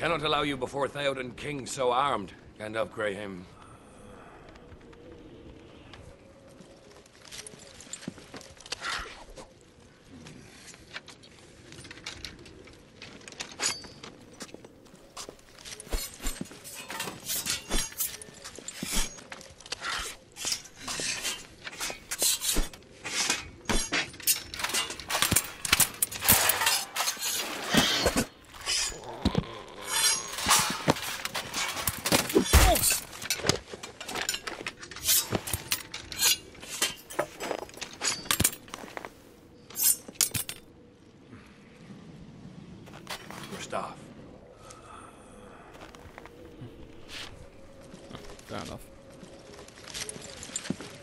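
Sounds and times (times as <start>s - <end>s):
metal clanking and clattering: 15.2s - 29.0s, 29.9s - 39.1s.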